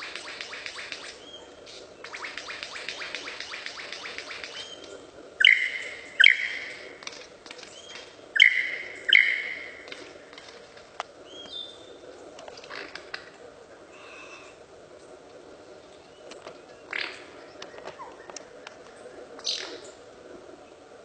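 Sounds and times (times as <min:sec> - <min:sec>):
bird mimicking laser-gun sounds: 0:00.0 - 0:01.4, 0:02.0 - 0:07.2.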